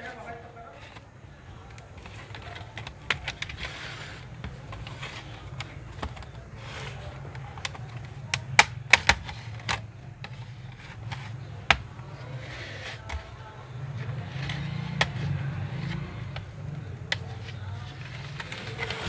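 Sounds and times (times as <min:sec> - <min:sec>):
plastic clips snapping: 0:00.9 - 0:12.0.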